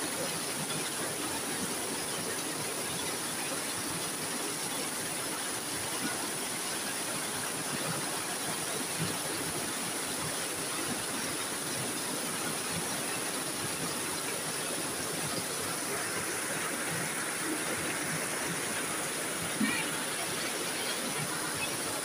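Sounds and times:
heavy rain falling: 0:03.6 - 0:22.0.

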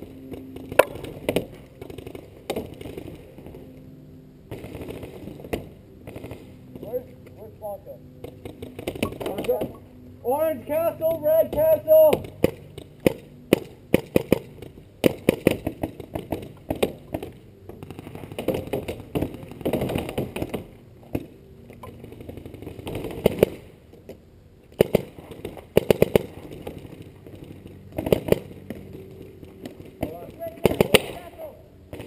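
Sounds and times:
paintball marker firing: 0:00.6 - 0:03.0, 0:12.1 - 0:17.8, 0:24.8 - 0:32.0.

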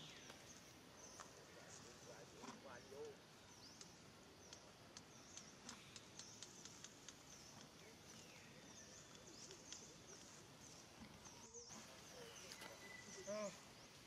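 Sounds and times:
soft ticks: 0:03.7 - 0:08.2, 0:09.0 - 0:10.3.

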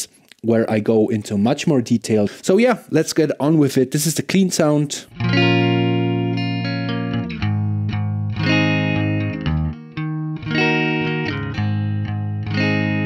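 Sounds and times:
clean electric guitar strumming: 0:05.1 - 0:13.0.

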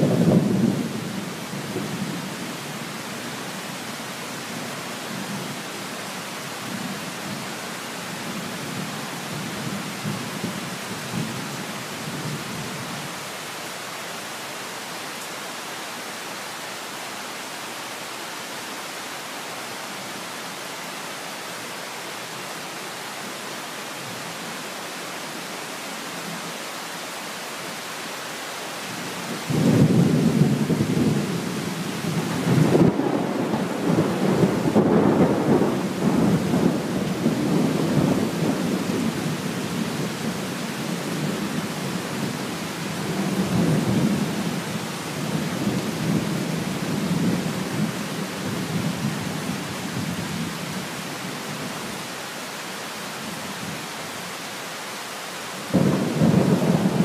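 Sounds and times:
steady rain: 0:00.0 - 0:57.0
thunder clap rolling: 0:32.4 - 0:36.7.

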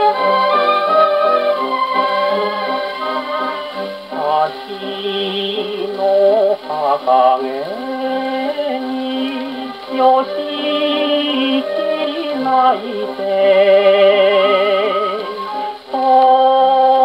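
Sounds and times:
man singing on gramophone record: 0:00.0 - 0:17.0.

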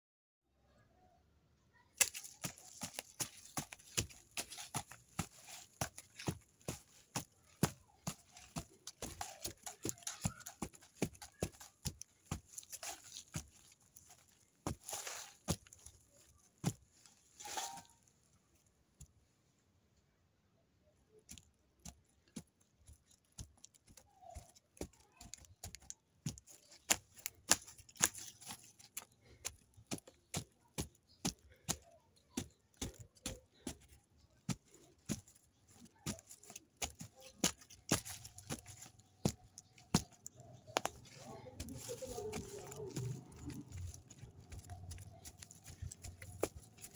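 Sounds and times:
stick scraping into soil: 0:02.0 - 0:16.0.

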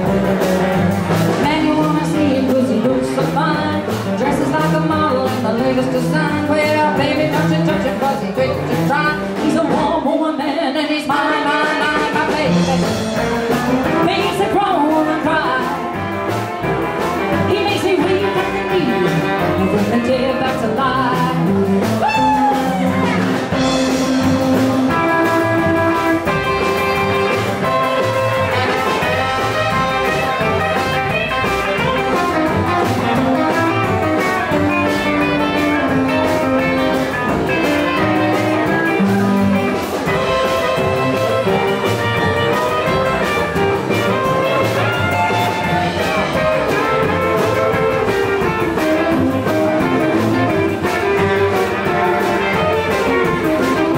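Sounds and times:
drums: 0:00.0 - 0:53.9
electric guitar: 0:00.0 - 0:53.9
upright bass: 0:00.0 - 0:53.9
saxophone: 0:11.1 - 0:53.9.

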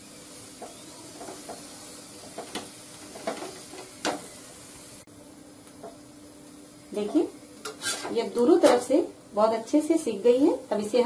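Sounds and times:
flatbread sizzling in ghee: 0:00.0 - 0:11.0
steel spatula scraping pan: 0:07.6 - 0:08.9.

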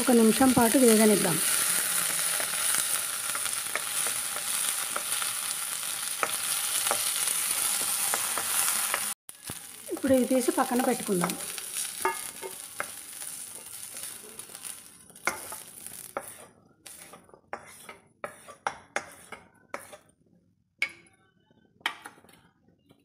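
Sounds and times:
oil sizzling: 0:00.0 - 0:20.0
spatula scraping metal pan: 0:11.2 - 0:20.1.

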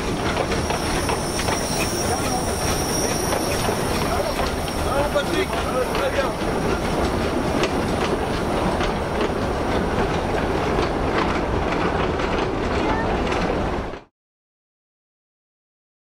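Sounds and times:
train wagons rumbling past: 0:00.0 - 0:14.1
wheels clicking over rail joints: 0:00.0 - 0:14.1.

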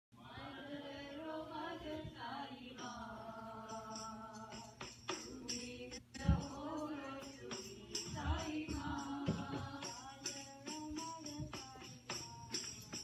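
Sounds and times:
devotional singing with music: 0:00.2 - 0:13.0
jingling hand percussion: 0:03.6 - 0:13.0.

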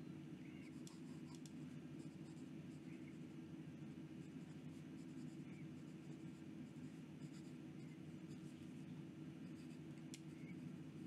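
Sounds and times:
steady low hum: 0:00.0 - 0:11.0
pen nib scratching paper: 0:00.6 - 0:02.9, 0:04.2 - 0:08.6, 0:09.4 - 0:10.7.

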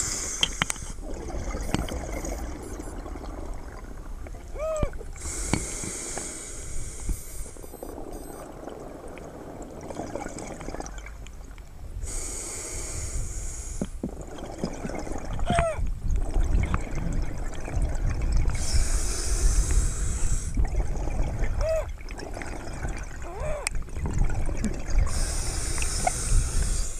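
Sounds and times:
regulator hissing inhalation: 0:00.0 - 0:01.0, 0:05.2 - 0:07.6, 0:12.0 - 0:14.0, 0:18.6 - 0:20.6, 0:25.1 - 0:26.9
exhaled bubbles rumbling: 0:00.0 - 0:05.4, 0:07.6 - 0:11.5, 0:14.0 - 0:26.9
short whining tones: 0:07.0 - 0:08.6.

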